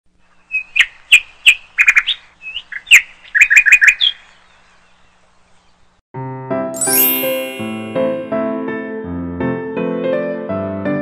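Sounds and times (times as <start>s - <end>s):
small bird chirping: 0.4s - 6.0s.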